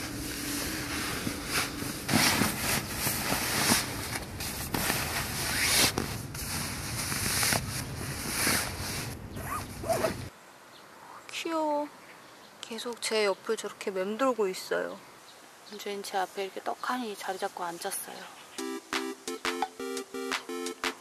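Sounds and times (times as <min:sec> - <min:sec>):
sleeping bag fabric rustling: 0:00.0 - 0:10.3.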